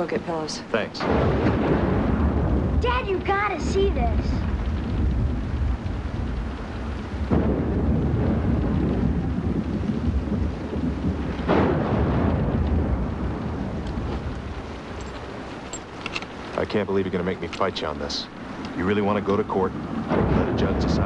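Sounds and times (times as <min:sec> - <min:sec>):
rain and storm rumble: 0:00.0 - 0:21.0
thunder cracks: 0:00.8 - 0:15.7, 0:16.3 - 0:21.0.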